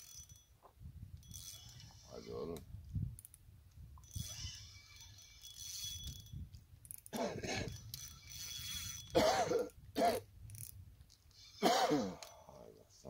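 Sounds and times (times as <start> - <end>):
person coughing: 7.2 - 7.7, 9.2 - 10.2, 11.6 - 12.2.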